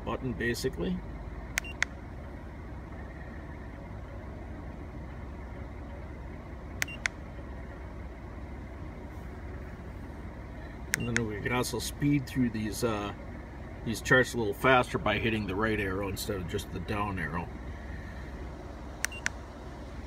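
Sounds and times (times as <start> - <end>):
car engine idling: 0.0 - 20.0
button clicks: 1.6 - 1.9, 6.8 - 7.2, 10.9 - 11.3, 19.0 - 19.4.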